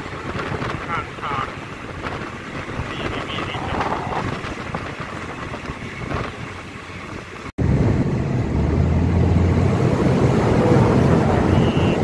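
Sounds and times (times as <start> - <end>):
train wheels rumbling: 0.0 - 12.0
low engine drone: 7.6 - 12.0.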